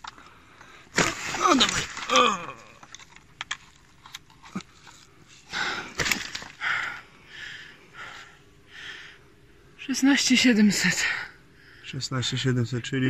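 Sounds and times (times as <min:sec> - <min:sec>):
person breathing hard: 0:05.4 - 0:09.5.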